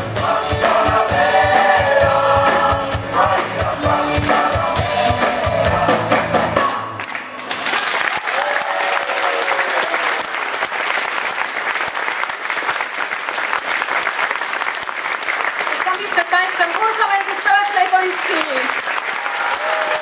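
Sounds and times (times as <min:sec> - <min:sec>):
choir singing with band: 0:00.0 - 0:06.9
audience applause: 0:07.0 - 0:20.0.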